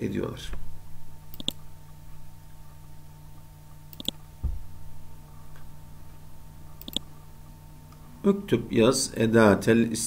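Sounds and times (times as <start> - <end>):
faint electrical hum: 0.0 - 10.0
computer mouse clicking: 1.3 - 1.6, 3.9 - 4.2, 6.7 - 7.1
dull low thump: 4.4 - 4.8.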